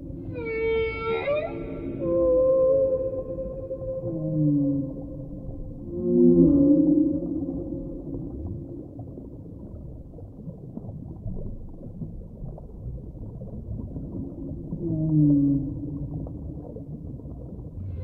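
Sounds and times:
whale moaning call: 0.0s - 8.4s, 14.8s - 16.2s
low underwater rumble: 0.0s - 18.0s.

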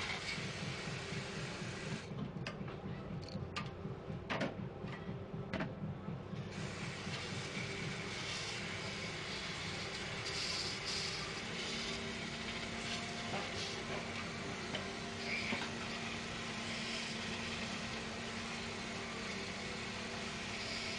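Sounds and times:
steady low hum: 0.0s - 20.9s
paint spray gun hissing: 8.4s - 13.9s.

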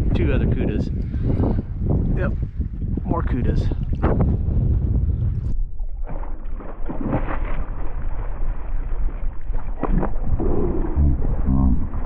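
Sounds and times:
wind buffeting microphone: 0.0s - 12.0s
fish splashing at water surface: 6.0s - 12.0s.

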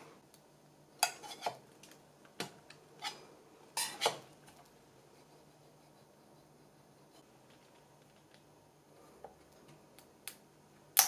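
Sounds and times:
metal spatula scraping and clicking: 1.0s - 2.0s, 2.7s - 4.6s.

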